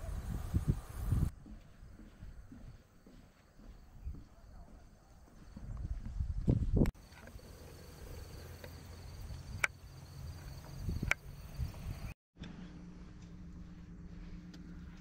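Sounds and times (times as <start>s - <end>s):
wind rumble on microphone: 0.0s - 2.8s, 5.4s - 6.9s, 10.6s - 12.2s
insects chirring: 0.2s - 12.2s
low steady hum: 12.4s - 15.0s.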